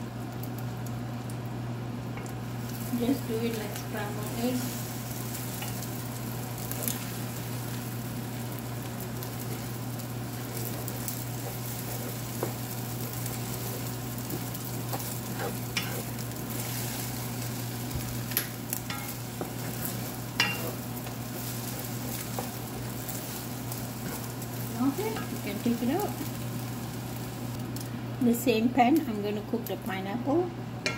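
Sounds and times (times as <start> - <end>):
eggs sizzling in a pan: 0.0 - 30.9
spatula scraping a pan: 10.3 - 18.0, 18.8 - 24.4.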